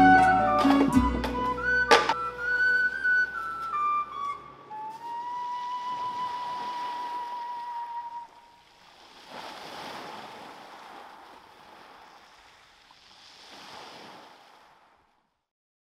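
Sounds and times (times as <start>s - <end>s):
held flute note: 0.0s - 8.6s
waves on shingle beach: 4.8s - 15.3s.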